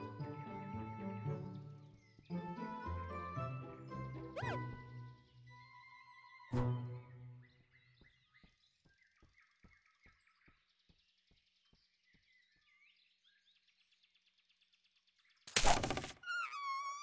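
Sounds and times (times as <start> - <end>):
faint bird chirps: 4.4 - 17.0.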